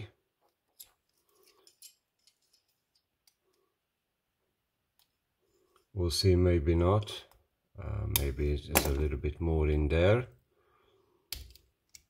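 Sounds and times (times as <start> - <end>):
metal tool clicking and scraping: 0.7 - 3.6.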